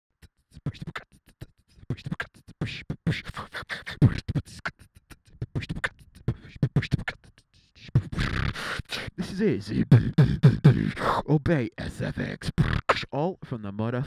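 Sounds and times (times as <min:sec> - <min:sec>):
person beatboxing: 0:00.2 - 0:13.5.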